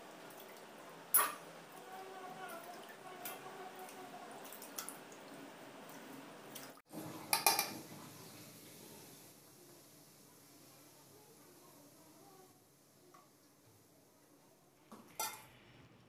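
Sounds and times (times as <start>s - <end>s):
water dripping: 0.0s - 8.8s
steel bowl clinking: 7.3s - 7.8s.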